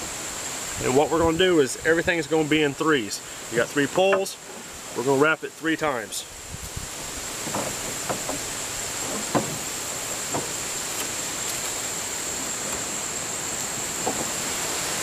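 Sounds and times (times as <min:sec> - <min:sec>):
steady hiss: 0:00.0 - 0:15.0
wooden poles knocking: 0:03.9 - 0:04.7, 0:07.2 - 0:11.8, 0:13.8 - 0:14.6
cord rubbing on poles: 0:06.7 - 0:14.7.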